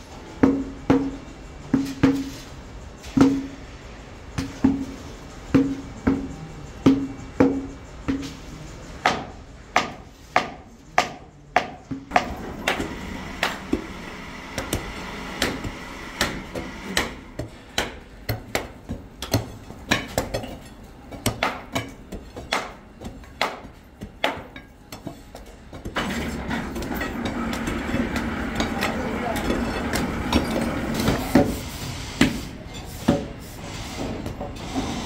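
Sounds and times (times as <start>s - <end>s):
hammers knocking on iron: 9.0s - 26.0s.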